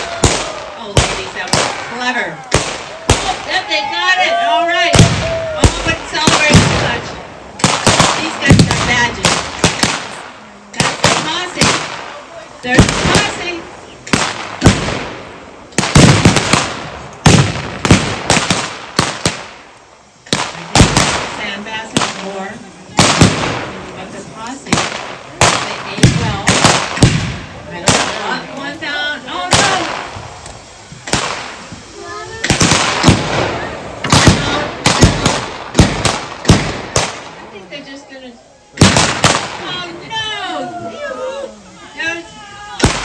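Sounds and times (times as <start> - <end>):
blank gunshots echoing: 4.9 - 19.6, 20.3 - 22.4, 29.4 - 30.2, 31.0 - 31.7, 32.4 - 37.4, 38.8 - 39.9.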